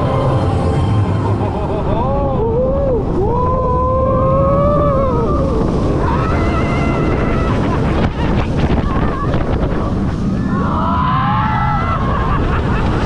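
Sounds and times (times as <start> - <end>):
roller coaster rumbling on track: 0.0 - 13.0
rush of wind: 0.0 - 13.0
riders screaming: 3.6 - 9.6, 10.4 - 13.0.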